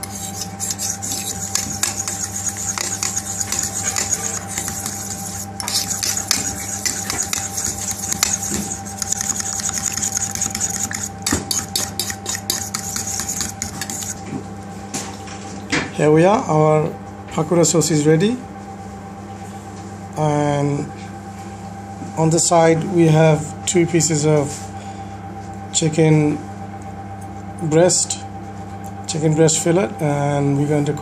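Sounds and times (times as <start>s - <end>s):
utensil clicking against metal bowl: 0.4s - 14.1s.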